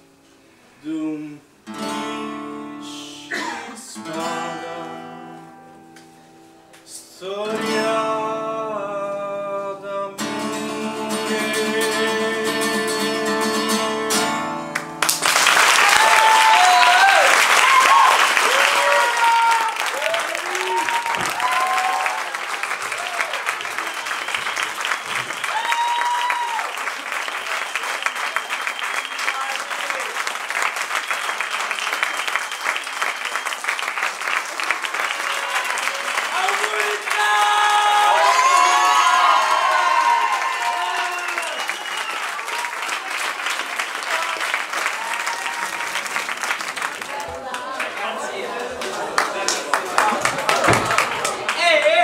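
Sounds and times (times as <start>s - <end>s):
audience applauding: 14.7s - 52.0s.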